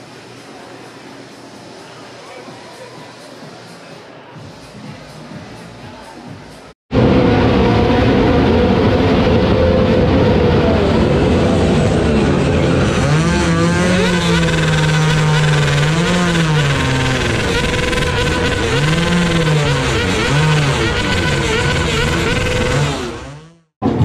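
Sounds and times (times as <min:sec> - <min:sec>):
motorcycle engines revving: 0:07.0 - 0:23.7.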